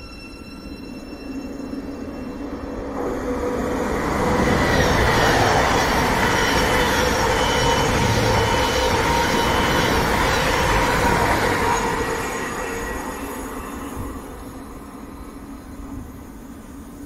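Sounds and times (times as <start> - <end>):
train wheel and rail noise: 0.0 - 17.0
train motor whine: 3.0 - 14.6.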